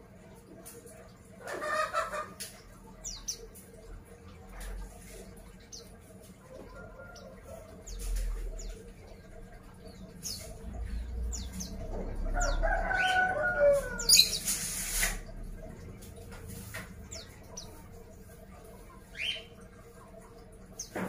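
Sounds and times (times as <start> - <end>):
small birds giving thin high calls: 9.9 - 15.3.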